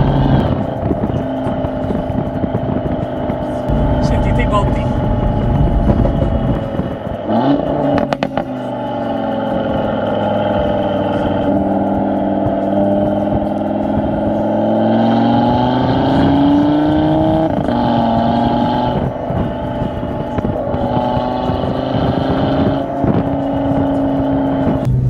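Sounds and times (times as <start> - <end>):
car engine accelerating: 0.0 - 25.0
exhaust pops and bangs: 3.7 - 8.5.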